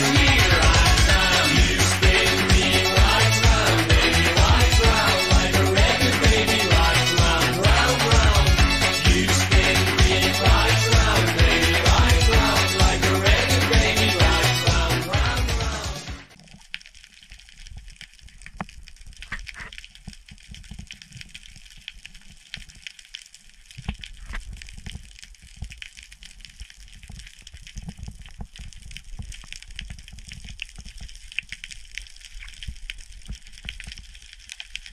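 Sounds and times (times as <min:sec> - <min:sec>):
fine crackling clicks: 0:16.3 - 0:34.9.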